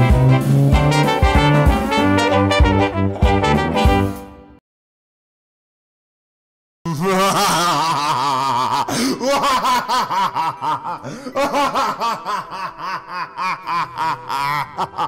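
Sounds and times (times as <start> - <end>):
man cackling laugh: 3.0 - 3.4, 6.9 - 15.0.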